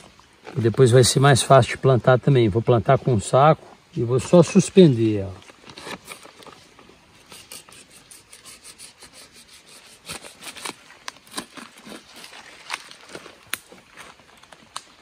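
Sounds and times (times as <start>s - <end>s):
knife sawing through plastic bag: 5.7s - 6.3s, 7.2s - 12.7s.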